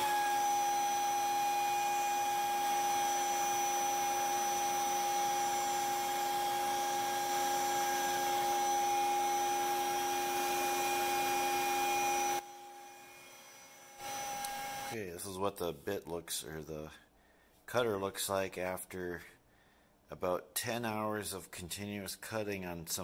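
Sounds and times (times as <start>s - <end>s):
hiss of cutting and dust extraction: 0.0s - 15.0s
router spindle high whine: 0.0s - 15.0s.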